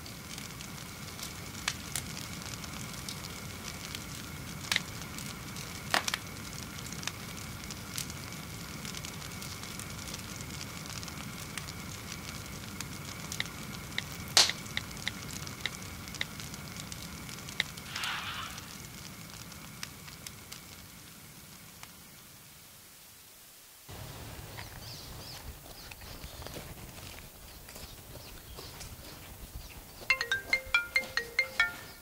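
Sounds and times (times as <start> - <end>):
fire hissing: 0.0 - 30.0
fire crackling and popping: 0.0 - 32.0.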